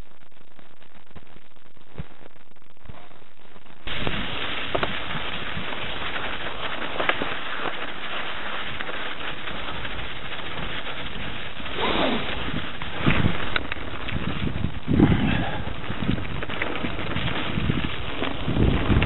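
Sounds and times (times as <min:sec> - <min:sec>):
bike tyre and frame rattle: 0:03.8 - 0:19.0
wind rushing on microphone: 0:08.8 - 0:19.0.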